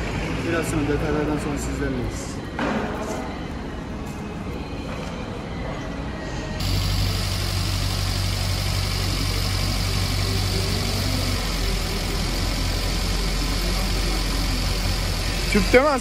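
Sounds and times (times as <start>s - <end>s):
car engine idling: 6.6s - 16.0s.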